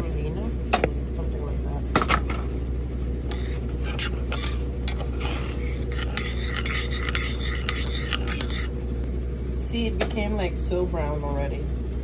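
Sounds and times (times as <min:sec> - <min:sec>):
steady low hum: 0:00.0 - 0:12.0
spoon scraping semolina in metal pot: 0:03.2 - 0:08.8.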